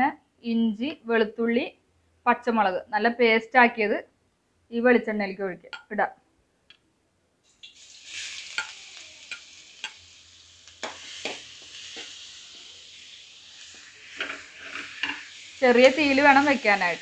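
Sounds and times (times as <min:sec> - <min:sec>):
paste sizzling in hot oil: 0:07.4 - 0:17.0
spoon clicking and scraping pan: 0:08.5 - 0:10.0, 0:10.8 - 0:12.2, 0:14.1 - 0:15.3.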